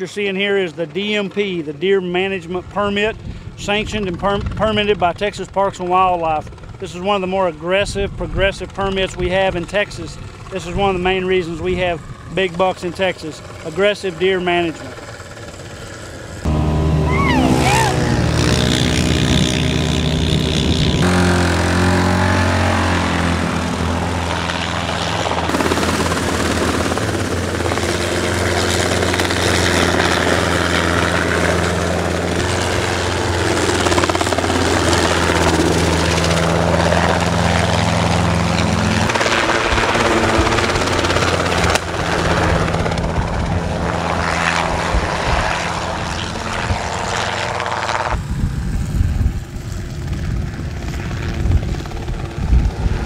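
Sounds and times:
helicopter running: 0.0 - 53.0
all-terrain vehicle engine: 14.9 - 48.2.

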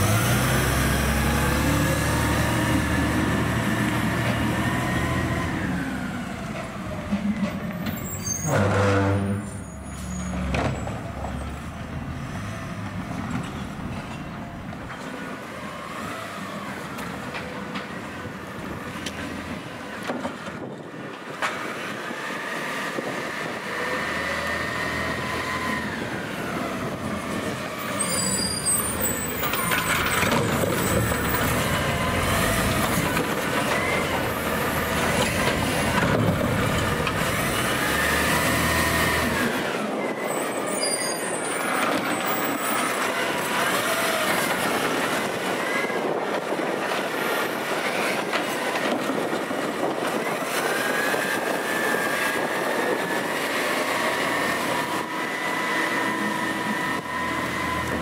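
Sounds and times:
garbage truck engine revving: 0.0 - 6.8, 28.7 - 39.8.

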